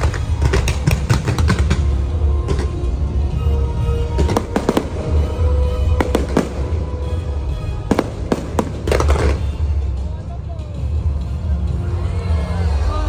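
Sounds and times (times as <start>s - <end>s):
fireworks bangs: 0.0s - 3.0s, 4.0s - 10.0s
music playing: 0.0s - 13.0s.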